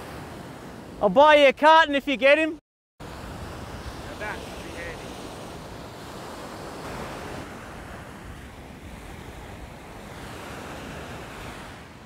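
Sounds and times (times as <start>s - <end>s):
surf breaking on beach: 3.0s - 12.0s.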